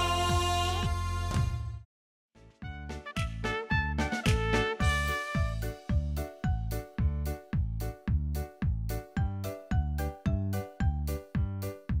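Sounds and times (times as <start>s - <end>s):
upbeat children's music: 0.0s - 1.8s, 2.4s - 12.0s.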